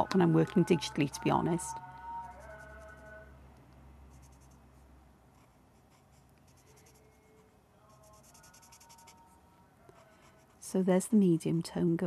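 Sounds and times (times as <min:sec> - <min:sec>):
marker scratching on paper: 0:08.1 - 0:09.2.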